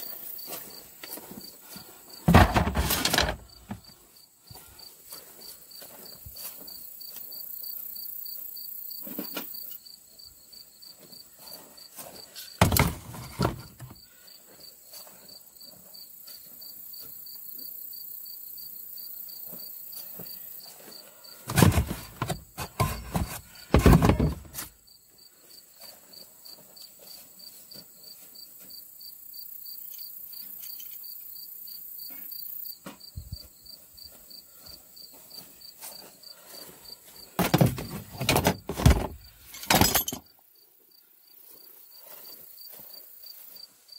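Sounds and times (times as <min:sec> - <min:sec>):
insects chirping: 0:00.0 - 0:43.9
loud knocks and rustling: 0:02.3 - 0:03.8, 0:21.5 - 0:24.7, 0:37.4 - 0:39.8.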